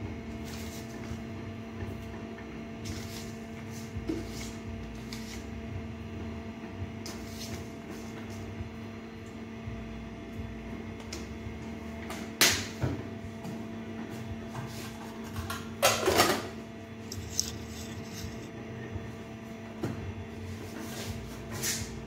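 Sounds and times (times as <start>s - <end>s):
steady low hum: 0.0s - 22.0s
rattling kitchen clatter: 15.4s - 18.5s.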